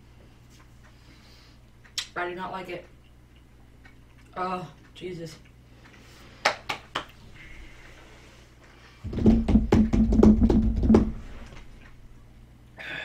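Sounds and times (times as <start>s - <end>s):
knocking and rattling on tabletop: 9.0s - 11.3s.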